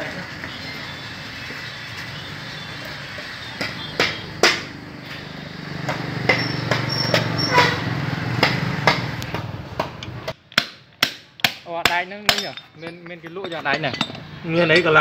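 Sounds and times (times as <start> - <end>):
hammer striking steel: 10.0 - 15.0.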